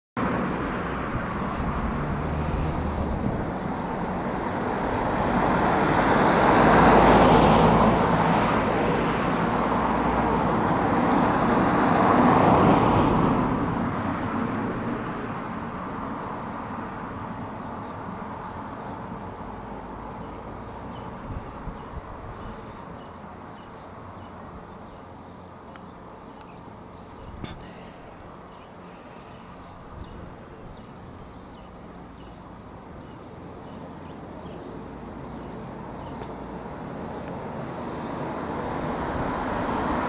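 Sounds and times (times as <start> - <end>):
vehicles passing close: 0.2 - 40.0.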